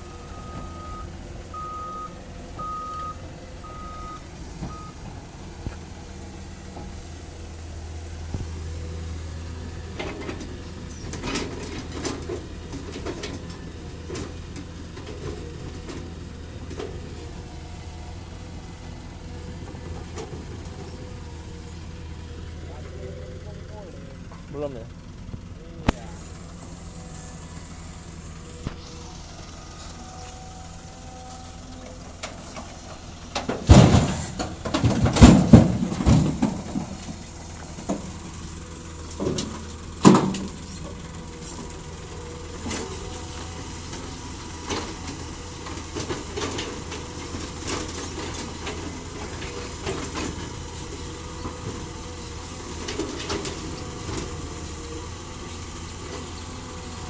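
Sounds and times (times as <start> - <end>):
diesel excavator engine running: 0.0 - 57.0
rocks crashing and clattering: 33.5 - 38.3.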